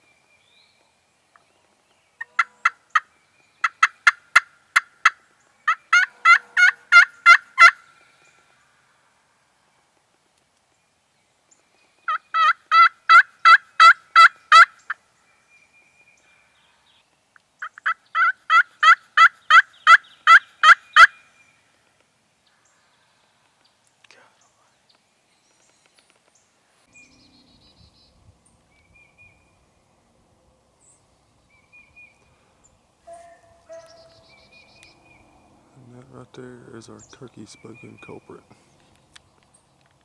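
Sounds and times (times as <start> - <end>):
turkey call yelps: 5.0 - 7.8, 12.1 - 14.7, 17.7 - 21.2, 33.1 - 34.4.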